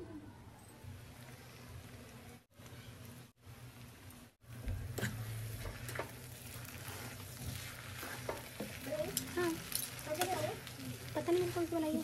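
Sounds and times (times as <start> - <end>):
noodles sizzling in a pan: 1.0 - 12.0
fork tines scraping a pan: 5.0 - 12.0.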